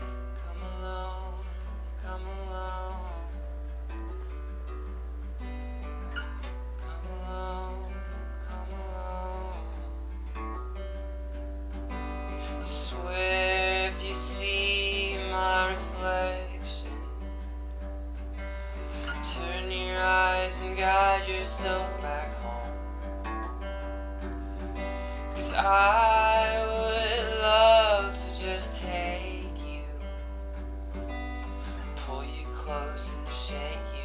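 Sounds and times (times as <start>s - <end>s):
man singing: 0.0s - 3.4s, 6.8s - 10.0s, 12.4s - 17.3s, 18.9s - 23.1s, 25.1s - 30.4s, 31.7s - 34.0s
acoustic guitar strumming: 0.0s - 34.0s.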